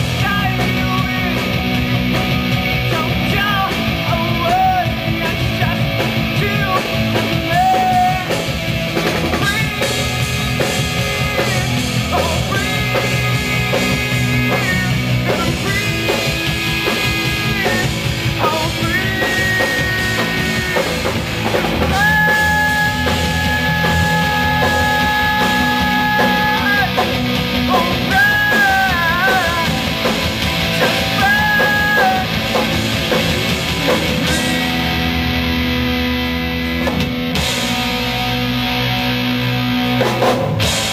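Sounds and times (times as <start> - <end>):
man singing: 0.0 - 8.6, 9.2 - 10.3, 11.1 - 35.0
live rock band: 0.0 - 40.9.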